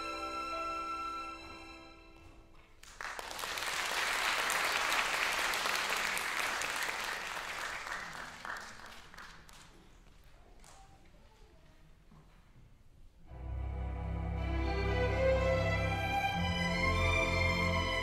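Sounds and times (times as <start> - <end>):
audience applauding: 2.6 - 10.0
held musical notes: 13.3 - 18.0.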